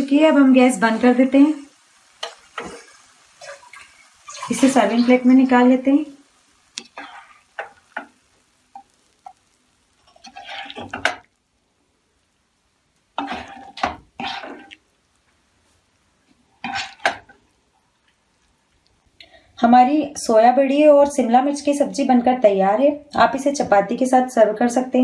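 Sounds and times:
spatula scraping a pan: 0:02.2 - 0:05.3, 0:06.8 - 0:11.2, 0:13.2 - 0:14.8, 0:16.6 - 0:17.4.

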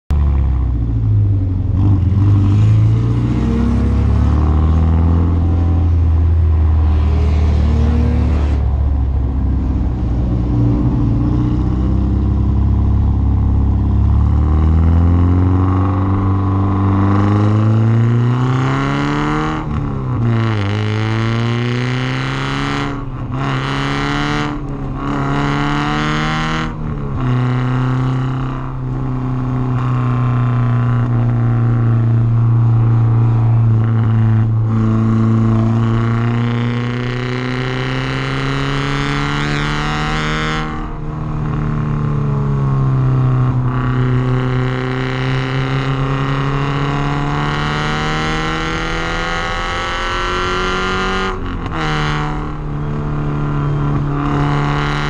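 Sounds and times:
car engine revving: 0:00.1 - 0:55.0.

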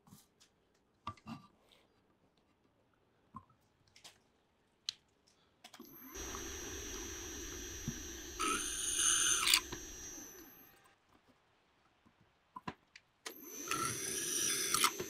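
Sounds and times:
drill cutting into steel: 0:05.8 - 0:10.8, 0:13.3 - 0:15.0
drill press motor whine: 0:05.8 - 0:10.8, 0:13.3 - 0:15.0.

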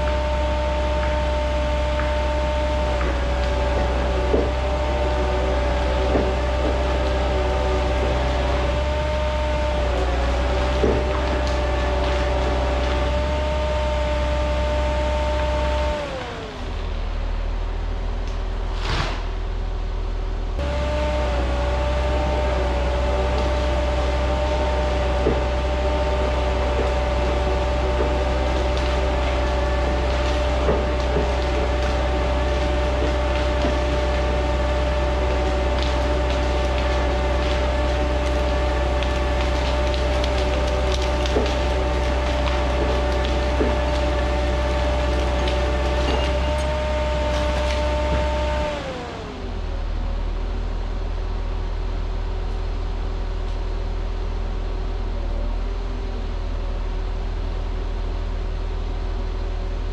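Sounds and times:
diesel engine running: 0:00.0 - 0:59.9
winch whine: 0:20.1 - 0:51.4.

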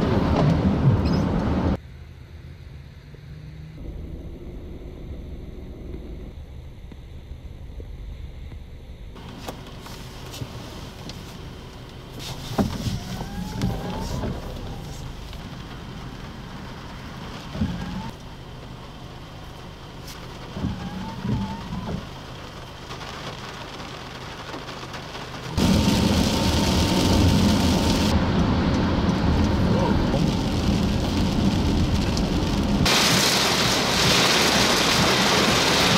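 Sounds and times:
rain and road noise inside car: 0:00.0 - 0:01.8, 0:09.2 - 0:35.9
vehicles passing: 0:00.0 - 0:06.4
wind: 0:00.0 - 0:35.9.

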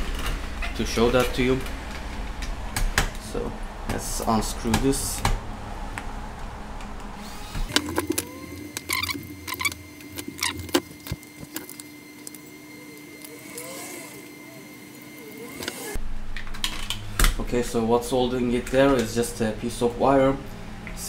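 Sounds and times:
electric screwdriver whirring: 0:07.2 - 0:16.0.

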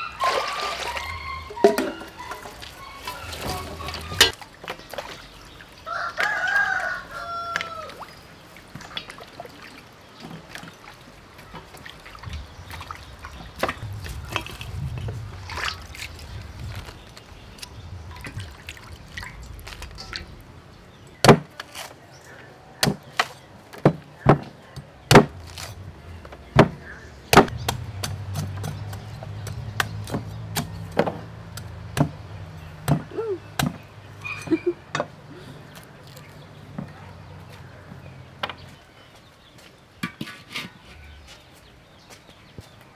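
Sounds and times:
cleaver chopping coconut: 0:21.2 - 0:21.6, 0:22.8 - 0:25.8, 0:26.6 - 0:32.2, 0:32.8 - 0:33.9.

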